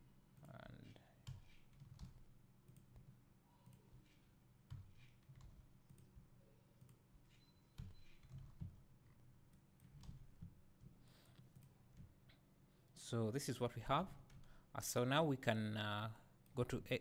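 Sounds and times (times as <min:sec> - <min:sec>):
computer mouse clicks: 0:00.4 - 0:06.2, 0:06.8 - 0:10.5.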